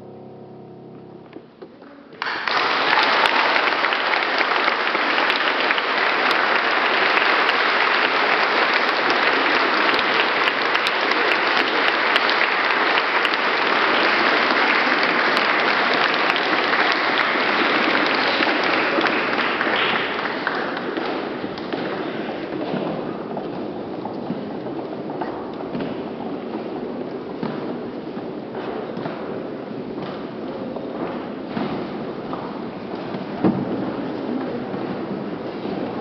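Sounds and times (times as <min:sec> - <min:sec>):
audience applauding: 0:02.2 - 0:24.2.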